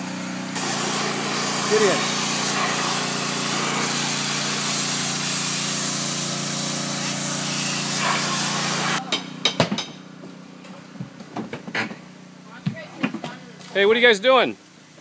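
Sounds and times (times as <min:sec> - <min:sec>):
pressure washer spraying: 0:00.0 - 0:09.0.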